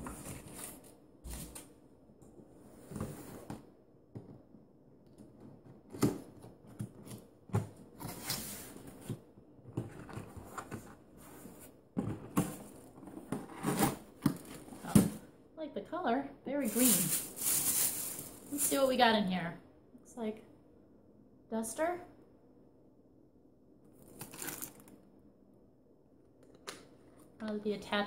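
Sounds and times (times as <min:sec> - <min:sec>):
cardboard scrapes and knocks: 0:08.0 - 0:15.0.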